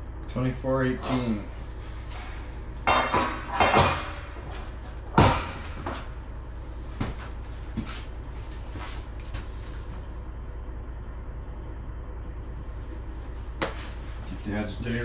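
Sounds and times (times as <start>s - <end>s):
steady low hum: 0.0s - 15.0s
metal clanks on milk tank: 2.8s - 4.4s.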